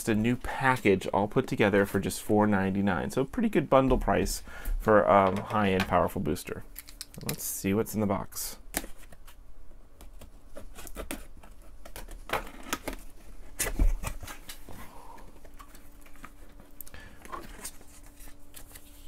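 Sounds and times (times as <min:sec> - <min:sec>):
paper and cardboard rustling: 0:10.0 - 0:19.0.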